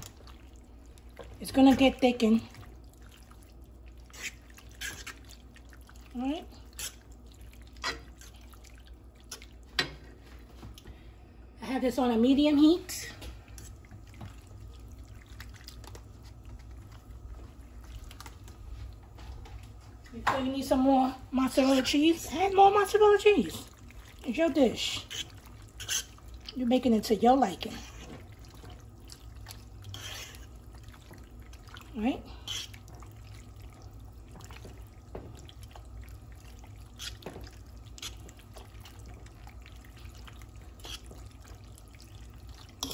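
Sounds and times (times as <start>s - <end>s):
fork stirring pasta in sauce: 0.0s - 9.6s, 22.8s - 26.6s, 27.6s - 42.9s
low steady hum: 0.0s - 42.9s.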